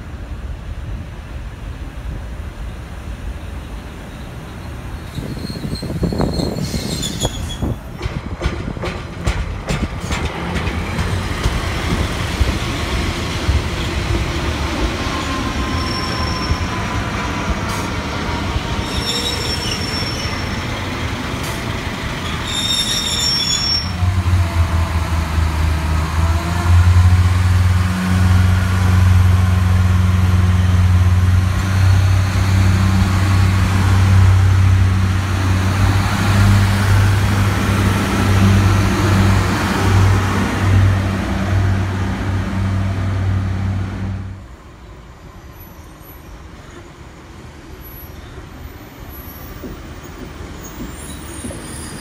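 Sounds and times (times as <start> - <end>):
high wheel squeals: 5.0 - 7.8, 15.2 - 16.9, 18.7 - 20.8, 22.2 - 24.0, 50.6 - 52.0
wheels clicking over rail joints: 7.9 - 12.5.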